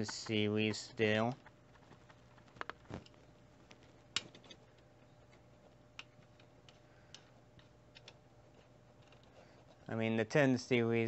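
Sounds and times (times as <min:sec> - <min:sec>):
low steady hum: 0:00.0 - 0:11.0
small clicks and taps of handling: 0:01.4 - 0:09.9.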